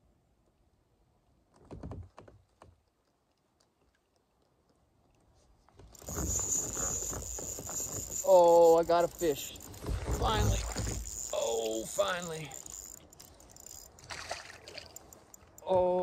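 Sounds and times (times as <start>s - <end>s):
fishing reel ticking: 5.9s - 15.7s.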